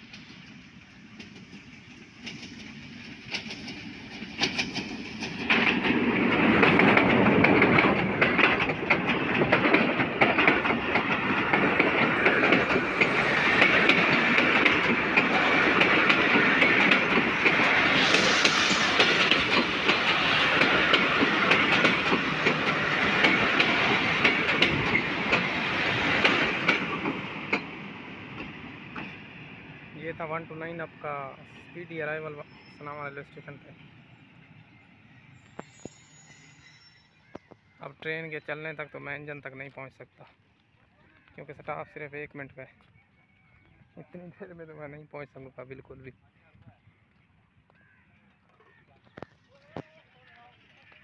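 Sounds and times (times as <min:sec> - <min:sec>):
train wheels clickety-clack: 0:00.0 - 0:29.2
diesel locomotive passing: 0:00.0 - 0:37.2.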